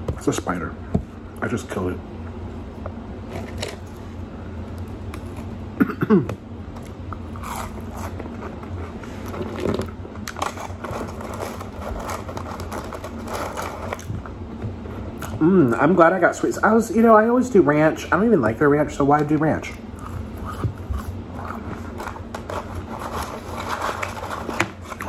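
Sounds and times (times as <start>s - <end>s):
chewing and crunching fries: 6.7s - 14.3s, 19.2s - 25.0s
short vocal sound: 15.4s - 15.8s.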